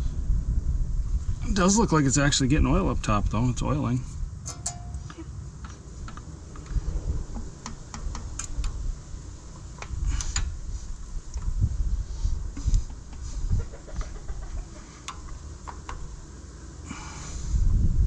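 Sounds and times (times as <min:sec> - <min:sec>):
low background rumble: 0:00.0 - 0:18.0
metallic clicks and taps: 0:04.5 - 0:08.8, 0:15.0 - 0:16.1.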